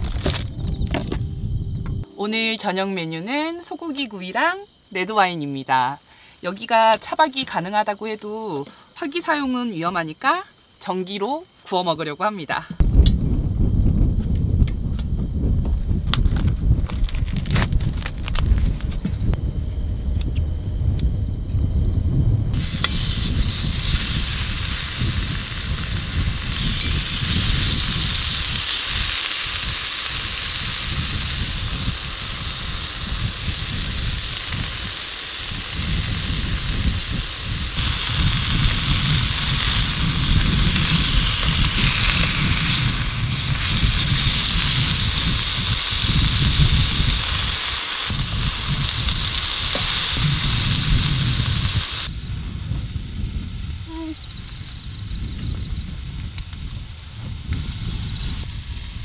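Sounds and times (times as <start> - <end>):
meat sizzling on a grill plate: 22.5 - 52.1.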